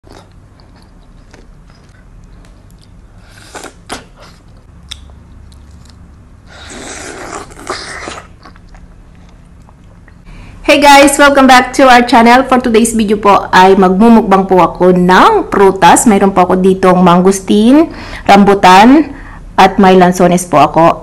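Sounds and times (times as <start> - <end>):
person chewing juicy fruit: 0.0 - 10.3
wet mouth clicks: 0.3 - 6.1.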